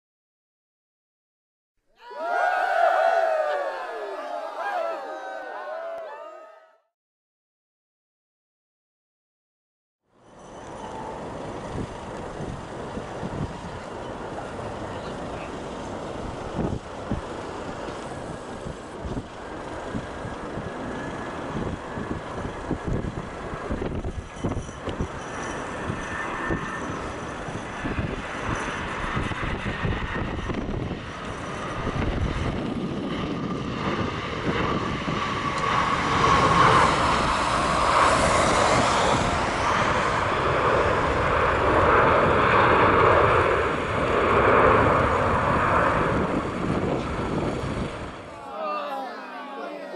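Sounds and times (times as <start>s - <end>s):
jet engine whine: 10.1s - 49.9s
jet engines roaring: 10.6s - 49.9s
wind rumbling on microphone: 11.4s - 48.3s.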